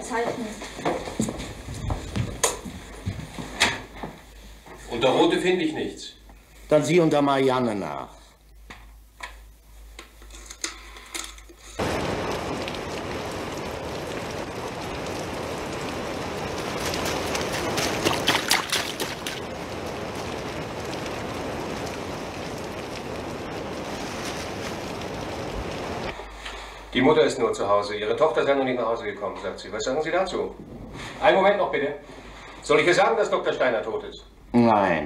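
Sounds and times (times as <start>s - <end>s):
heavy rain on pavement: 11.6s - 26.2s
water splashes: 11.8s - 26.2s.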